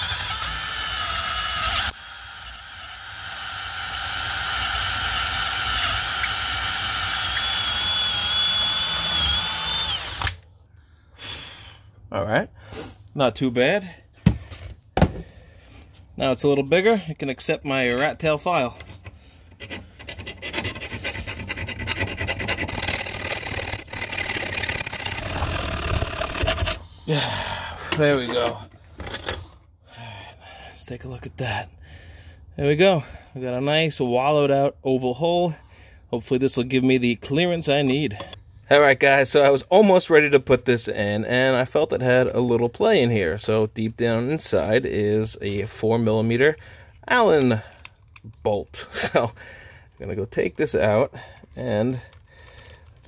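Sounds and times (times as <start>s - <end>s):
electric drill drilling aluminium: 0.0s - 10.4s, 22.0s - 26.9s
file rasping through metal: 19.5s - 26.9s.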